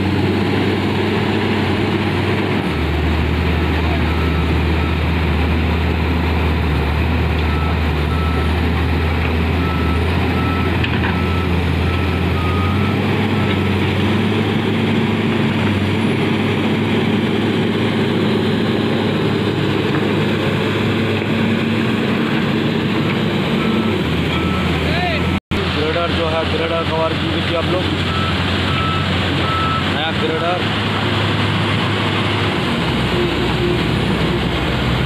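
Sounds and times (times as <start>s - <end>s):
diesel engine under load: 0.0s - 35.0s
reversing alarm beeping: 3.6s - 5.0s, 7.4s - 8.6s, 9.6s - 13.7s, 23.5s - 24.8s, 28.0s - 30.0s.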